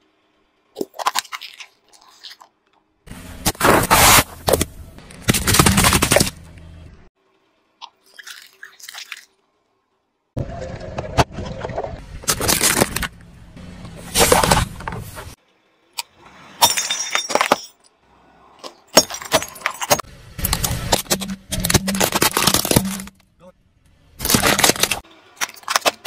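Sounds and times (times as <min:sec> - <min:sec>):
tyres crushing plastic objects: 0:03.5 - 0:06.4, 0:12.2 - 0:13.1, 0:18.6 - 0:23.2, 0:24.2 - 0:26.0.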